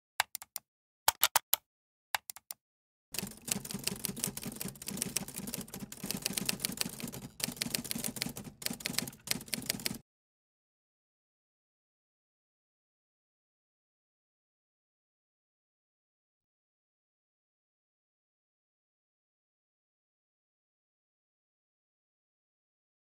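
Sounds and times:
quick clicks: 0:00.2 - 0:01.6, 0:03.2 - 0:10.0
typewriter keys clattering: 0:03.2 - 0:10.0.

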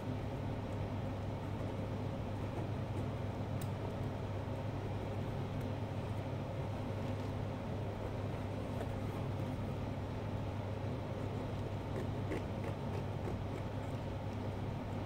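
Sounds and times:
low room hum: 0:00.0 - 0:15.0
knife ticking through pumpkin rind: 0:11.8 - 0:13.9.

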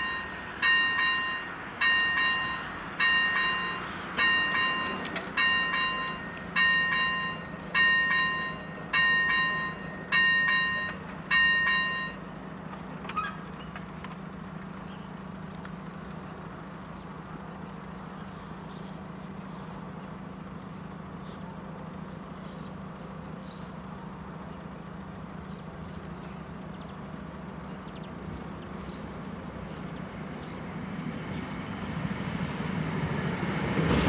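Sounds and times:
level crossing bell ringing: 0:00.0 - 0:12.3.

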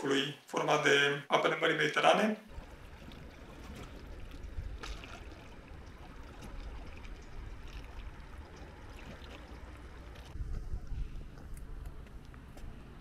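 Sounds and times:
sea water lapping at shore: 0:02.5 - 0:11.5
steady low rumble: 0:02.5 - 0:13.0.

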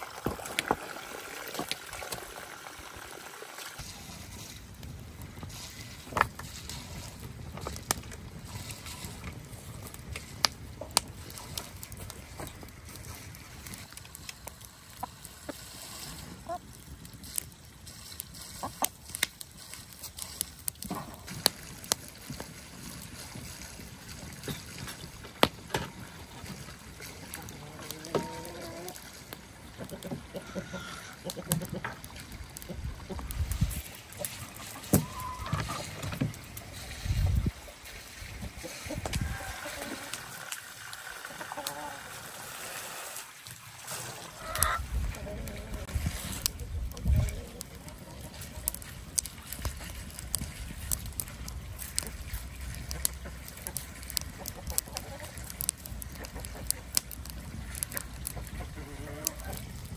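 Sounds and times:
hens clucking: 0:14.8 - 0:16.7, 0:18.5 - 0:19.0, 0:27.2 - 0:33.4, 0:34.0 - 0:36.3, 0:38.4 - 0:42.6, 0:44.0 - 0:48.8, 0:52.9 - 0:57.0, 0:57.8 - 0:59.7
chickens clucking softly: 0:16.4 - 0:16.6, 0:29.8 - 0:32.0, 0:38.6 - 0:40.4, 0:41.1 - 0:42.2, 0:44.3 - 0:45.9, 0:52.9 - 0:55.5, 0:56.1 - 0:56.9, 0:58.2 - 0:59.7.

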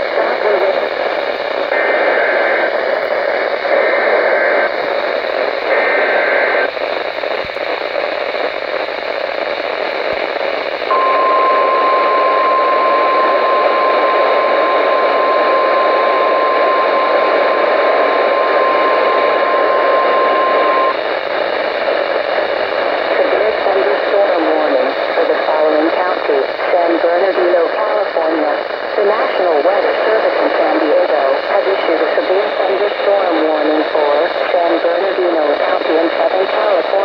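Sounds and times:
radio static hiss: 0:00.0 - 0:37.0
steady warning alarm tone: 0:10.9 - 0:21.0.

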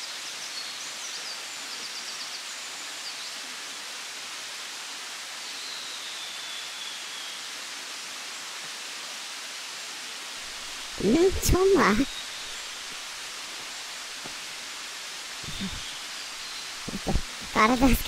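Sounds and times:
mountain stream rushing: 0:00.0 - 0:18.0
birds chirping: 0:10.7 - 0:14.4, 0:15.4 - 0:18.0.

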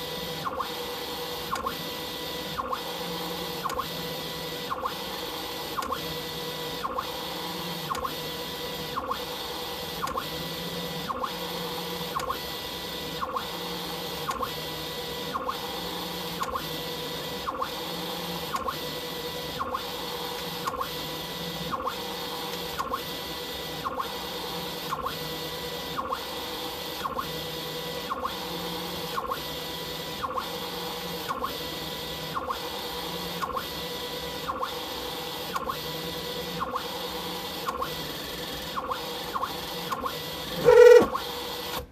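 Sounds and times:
stepper motors whining: 0:40.5 - 0:41.8.

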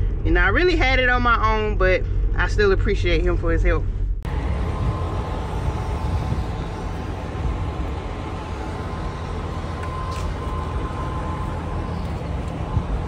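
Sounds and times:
faint steady whine: 0:03.8 - 0:13.0
diesel trucks idling: 0:04.3 - 0:13.0.

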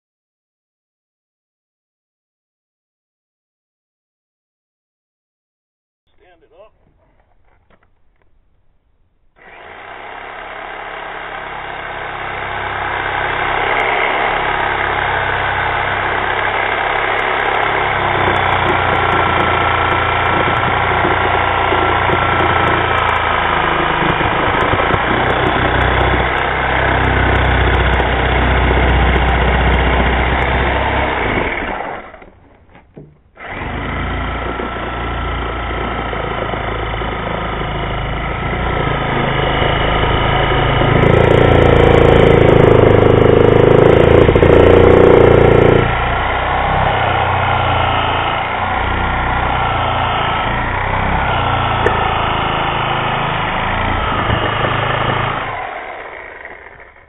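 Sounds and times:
reciprocating saw cutting rubber: 0:09.3 - 0:57.0.

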